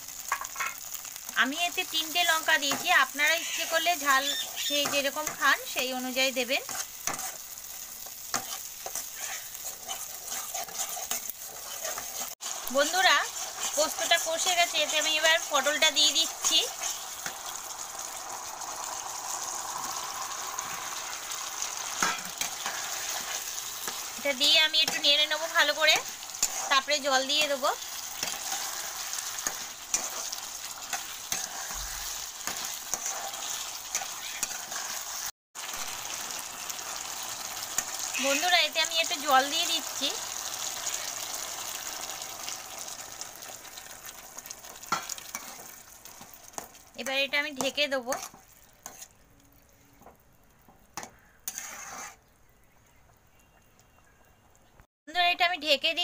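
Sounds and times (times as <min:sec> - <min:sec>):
food sizzling in a pan: 0:00.0 - 0:52.3
spatula scraping and tapping pan: 0:02.6 - 0:02.9, 0:04.2 - 0:05.6, 0:06.6 - 0:12.4, 0:21.9 - 0:25.2, 0:25.8 - 0:35.3, 0:44.8 - 0:49.2, 0:50.0 - 0:52.2.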